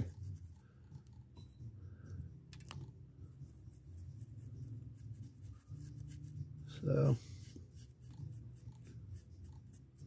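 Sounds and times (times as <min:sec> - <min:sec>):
brush scratching on plastic: 0:00.0 - 0:00.6, 0:03.2 - 0:10.0
low steady hum: 0:00.0 - 0:10.0.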